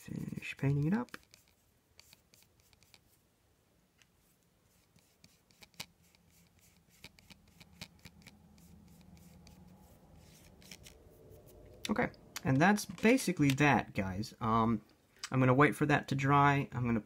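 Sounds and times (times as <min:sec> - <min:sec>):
paintbrush strokes on plastic: 0:00.0 - 0:03.3, 0:04.0 - 0:11.8.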